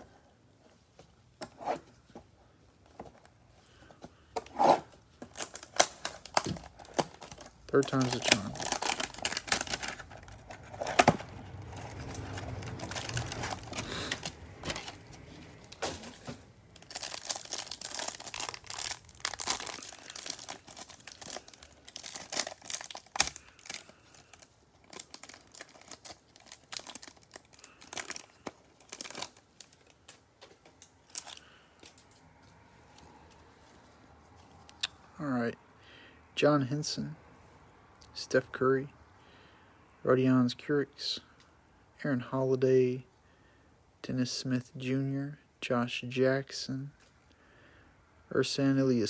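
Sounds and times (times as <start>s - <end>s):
plastic wrapper crinkling: 5.2s - 32.2s.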